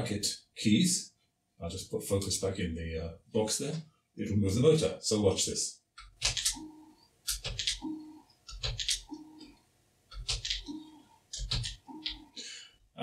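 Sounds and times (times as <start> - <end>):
keyboard keys clicking: 6.0 - 9.5, 10.1 - 12.3.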